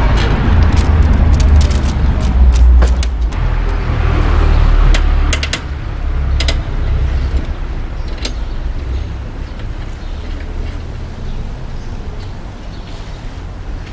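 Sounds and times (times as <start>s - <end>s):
low rumble: 0.0s - 7.5s.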